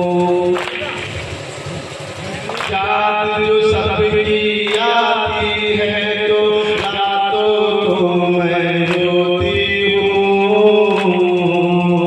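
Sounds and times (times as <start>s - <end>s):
men chanting a lament over loudspeaker: 0.0s - 12.0s
hands slapping chests: 0.6s - 1.1s, 2.5s - 2.8s, 4.7s - 5.0s, 6.6s - 7.0s, 8.9s - 9.1s.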